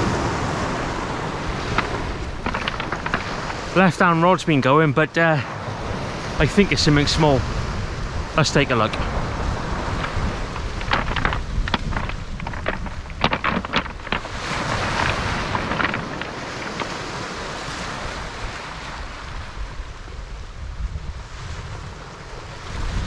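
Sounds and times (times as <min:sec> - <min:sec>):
wind rumble on microphone: 0:00.0 - 0:04.1, 0:05.4 - 0:23.0
waves washing over shingle: 0:00.0 - 0:23.0
footsteps crunching on pebbles: 0:01.6 - 0:04.0, 0:09.7 - 0:17.3.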